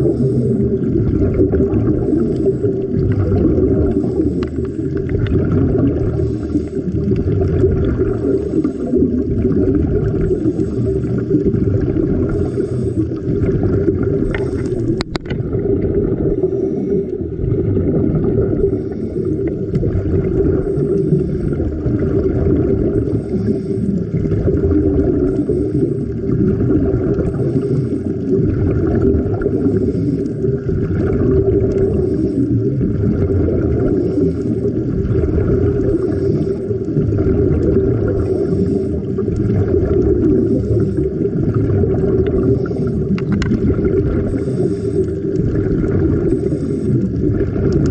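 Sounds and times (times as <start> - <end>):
muffled underwater rumble: 0.0 - 47.9.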